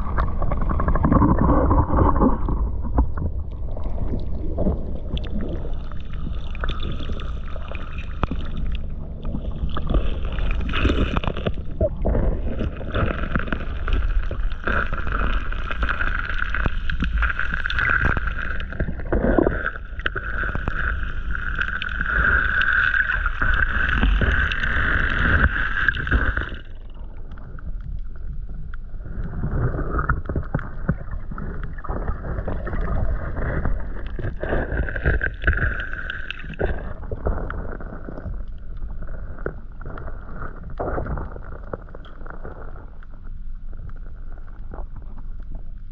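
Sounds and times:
low rumble and gurgling: 0.0 - 45.9
muffled underwater water noise: 0.0 - 45.9.

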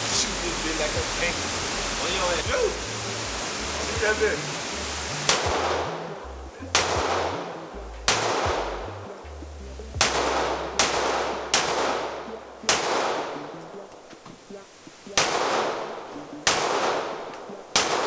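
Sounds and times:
pistol shots echoing indoors: 10.0 - 12.1, 12.7 - 13.4, 15.2 - 15.8, 16.5 - 18.0.

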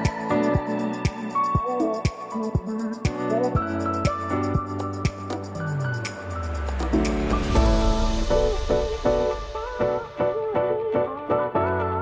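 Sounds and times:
lower musical accompaniment: 0.0 - 12.0.

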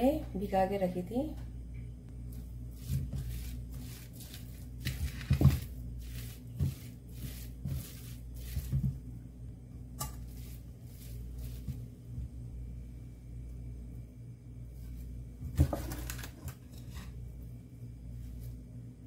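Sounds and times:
spatula scraping a pan: 2.8 - 9.0.

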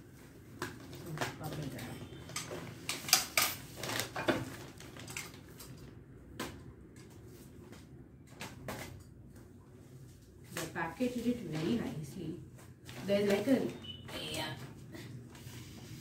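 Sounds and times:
plastic wrap crinkling: 3.7 - 5.5.

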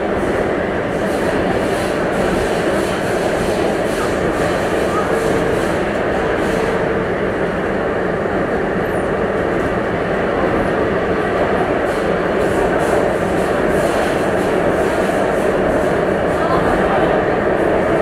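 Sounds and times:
metro train rumbling in tunnel: 0.0 - 18.0.

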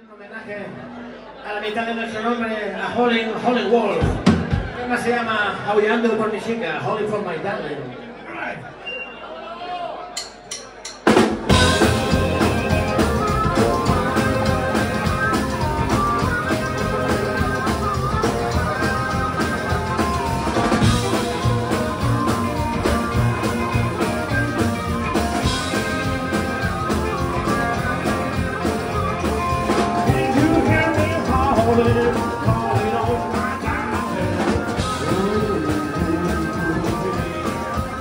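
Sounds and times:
blues band playing: 10.4 - 38.0.

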